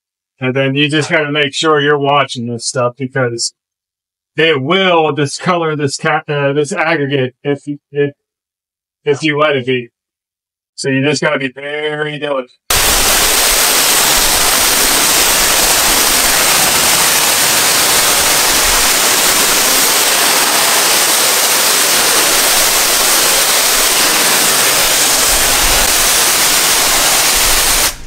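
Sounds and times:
pressure washer spraying water: 0:12.7 - 0:28.0.

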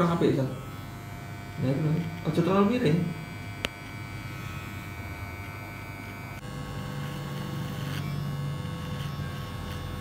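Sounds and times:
electric hair clipper buzzing: 0:00.0 - 0:10.0.

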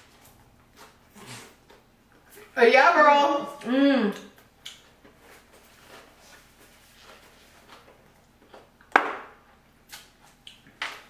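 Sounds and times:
people chewing: 0:00.1 - 0:02.5, 0:03.6 - 0:08.9.

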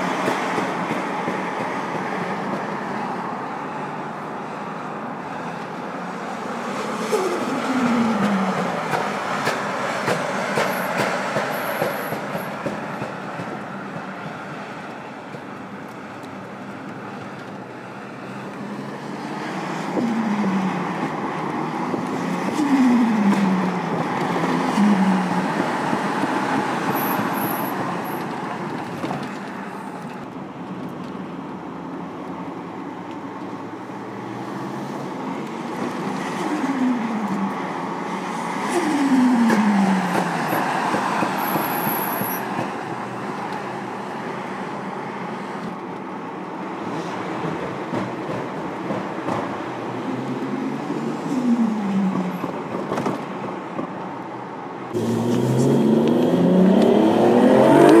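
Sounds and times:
car engine revving: 0:54.9 - 0:58.0.

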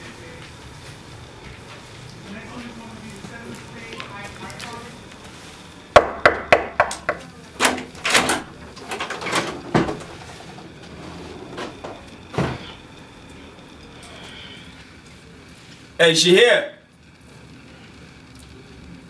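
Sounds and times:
knocking on a door: 0:06.0 - 0:07.2
door opening clicks: 0:06.9 - 0:10.2.

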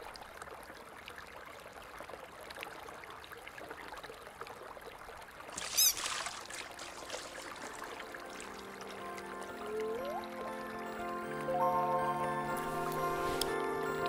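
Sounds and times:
water running and trickling: 0:00.0 - 0:11.7
high squeak: 0:05.7 - 0:06.1.

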